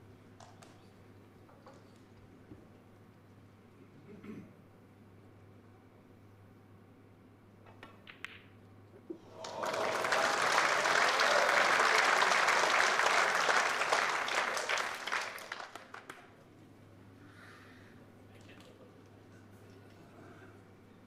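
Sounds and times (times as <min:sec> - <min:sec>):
snooker balls clicking: 0:07.7 - 0:08.6
crowd applauding: 0:09.2 - 0:16.3.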